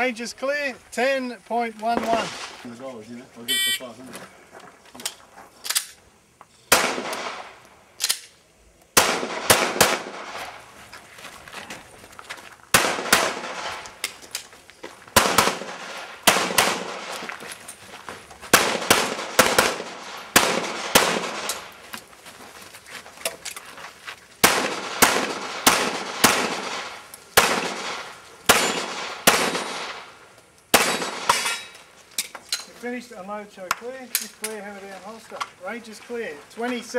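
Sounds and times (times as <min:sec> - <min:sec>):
pistol shots with echo: 0:06.7 - 0:07.6, 0:09.0 - 0:10.4, 0:12.8 - 0:13.8, 0:15.2 - 0:17.1, 0:18.5 - 0:21.7, 0:24.4 - 0:30.1, 0:30.7 - 0:31.7.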